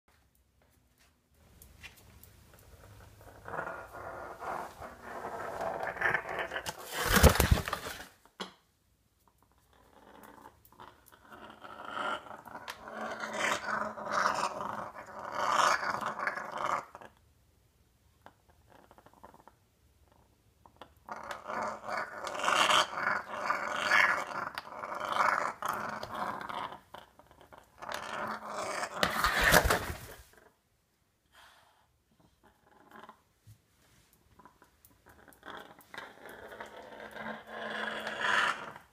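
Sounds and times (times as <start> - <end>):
parrot growling: 3.2 - 8.0, 9.6 - 17.2, 21.0 - 30.4, 32.2 - 33.3, 34.4 - 38.9.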